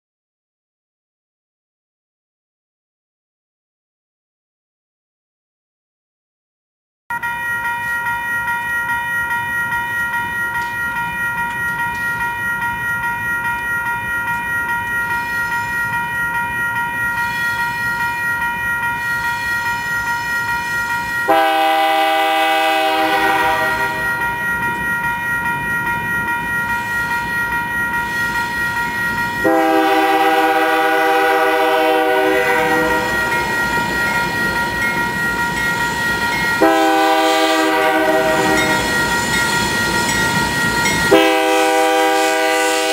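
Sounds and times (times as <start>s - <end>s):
crossing bell ringing: 7.1s - 42.9s
train air horn blasts: 21.2s - 24.1s, 29.4s - 33.3s, 36.6s - 38.9s, 41.1s - 42.9s.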